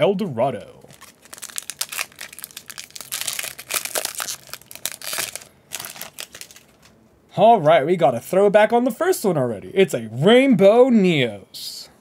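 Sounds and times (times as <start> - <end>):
wrapper crinkling: 0.8 - 7.0.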